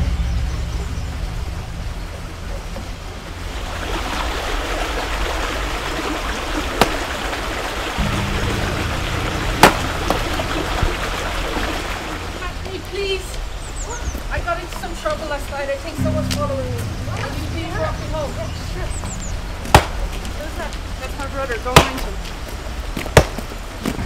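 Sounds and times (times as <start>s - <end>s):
low steady hum: 0.0s - 4.9s, 8.0s - 13.8s, 15.9s - 22.5s.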